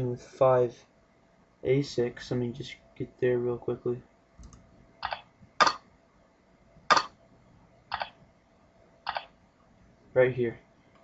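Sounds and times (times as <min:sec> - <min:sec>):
computer mouse clicks: 0:04.4 - 0:05.8, 0:07.9 - 0:08.2, 0:09.1 - 0:09.4.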